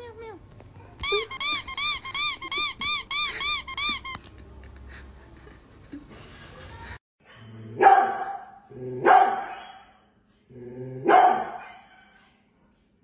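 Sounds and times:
squeaky toy squeaks: 1.0s - 4.2s
dog bark: 7.8s - 10.0s, 11.0s - 12.2s.

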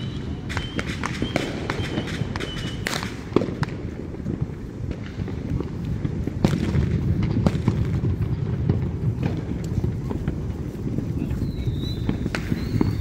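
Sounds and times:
high firework whistle: 0.0s - 3.1s, 11.2s - 13.0s
fireworks cracking and popping: 0.0s - 13.0s.

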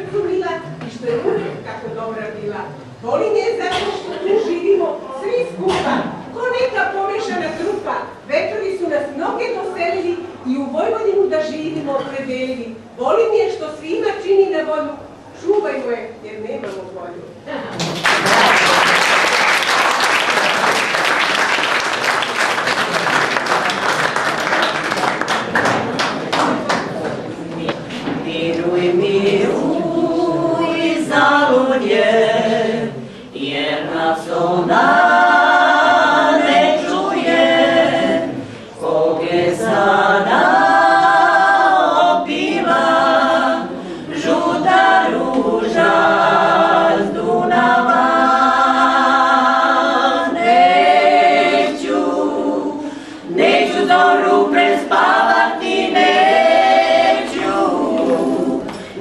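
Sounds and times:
women singing in harmony: 28.0s - 59.0s.

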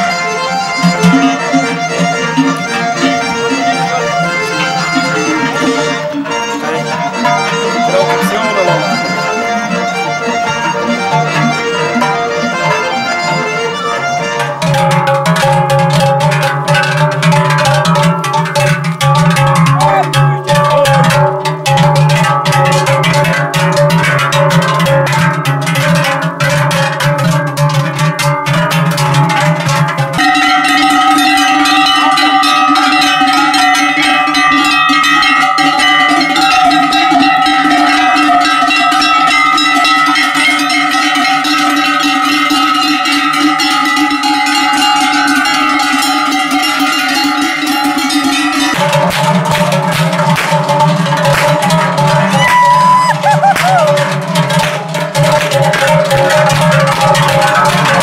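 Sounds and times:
cowbells clanging: 0.0s - 58.0s.

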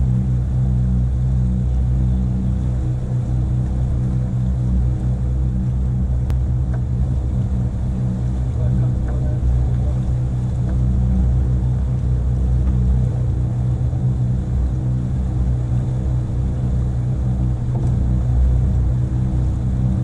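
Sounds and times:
motorboat engine humming: 0.0s - 20.0s.

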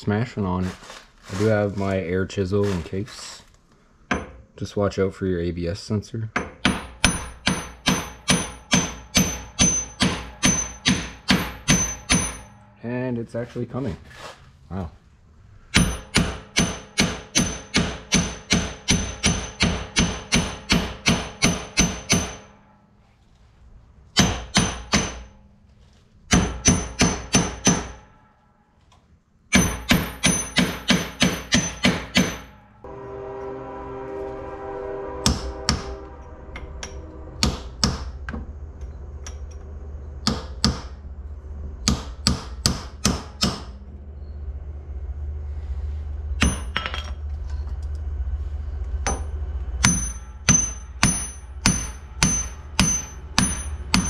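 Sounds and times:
low rumbling hum: 0.0s - 54.0s
hammer striking metal: 4.1s - 4.6s, 6.3s - 13.1s, 15.7s - 23.0s, 24.1s - 25.5s, 26.3s - 28.6s, 29.5s - 34.1s, 34.9s - 41.1s, 41.8s - 43.9s, 46.4s - 47.3s, 49.0s - 54.0s.

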